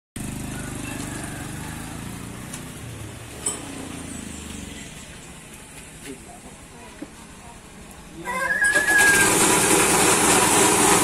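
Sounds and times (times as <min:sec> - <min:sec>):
vehicle engine running: 0:00.2 - 0:06.7.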